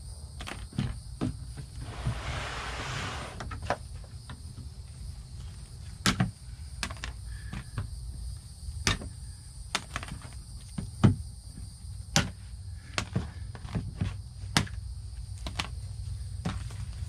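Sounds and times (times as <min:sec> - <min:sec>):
insects trilling: 0:00.0 - 0:17.0
rustling: 0:01.7 - 0:03.7.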